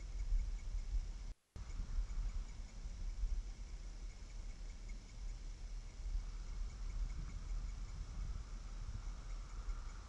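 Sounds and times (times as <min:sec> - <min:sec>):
faint high pulsing tone: 0:00.0 - 0:10.0
faint low rumble: 0:00.0 - 0:10.0
steady hiss: 0:00.0 - 0:10.0.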